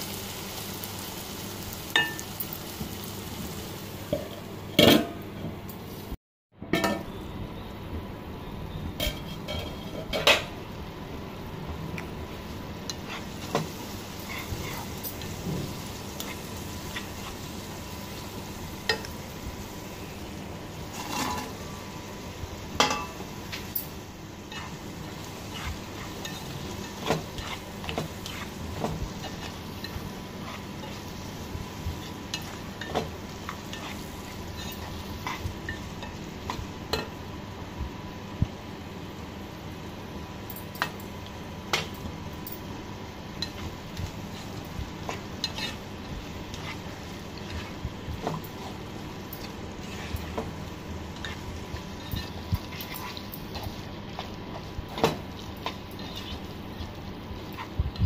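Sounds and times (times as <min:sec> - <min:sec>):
masala sizzling in a wok: 0:00.0 - 0:06.2, 0:06.8 - 0:58.0
spatula stirring and scraping: 0:12.8 - 0:19.6, 0:20.8 - 0:21.8, 0:22.8 - 0:37.1, 0:43.1 - 0:58.0.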